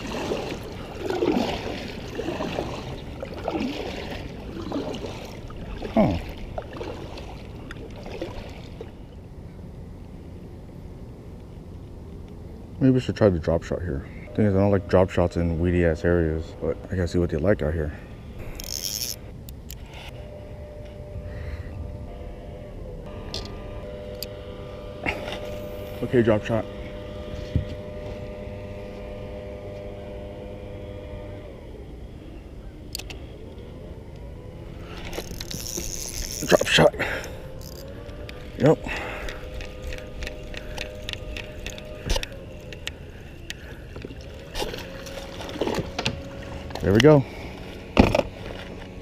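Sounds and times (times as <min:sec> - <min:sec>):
paddle strokes in water: 0:00.0 - 0:09.2, 0:34.7 - 0:49.0
engine humming: 0:00.0 - 0:49.0
low steady rumble: 0:00.0 - 0:49.0.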